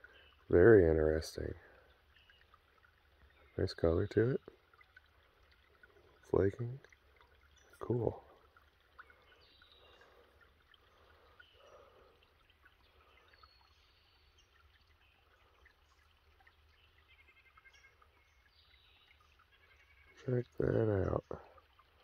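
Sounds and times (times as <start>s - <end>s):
distant birds chirping: 0.0s - 22.0s.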